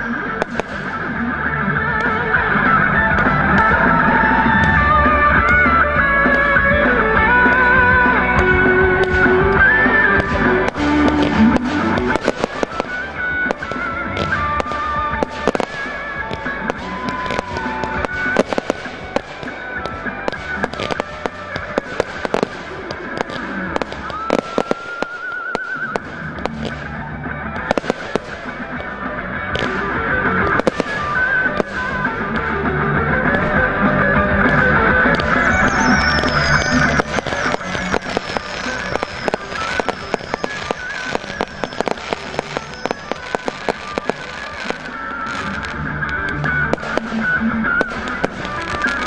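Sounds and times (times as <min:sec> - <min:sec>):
fireworks bursting with sharp bangs: 0:00.0 - 0:49.0.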